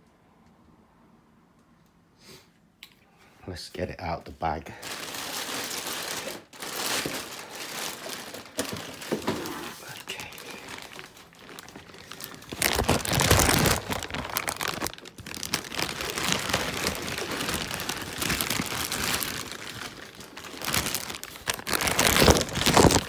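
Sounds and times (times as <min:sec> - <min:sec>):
plastic bag crinkling: 0:04.7 - 0:23.0.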